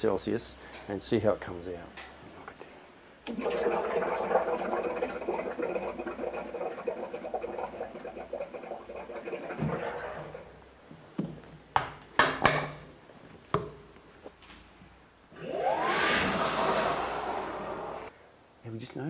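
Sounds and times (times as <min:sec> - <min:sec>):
washer motor whirring: 0:03.3 - 0:10.5, 0:15.4 - 0:18.1
parts washer humming: 0:03.3 - 0:10.8, 0:15.3 - 0:18.1.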